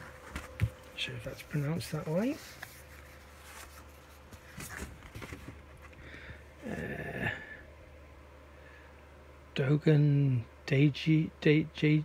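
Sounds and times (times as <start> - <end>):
cards rustling and tapping: 0.0 - 6.0
breathy vocal murmur: 6.2 - 7.6.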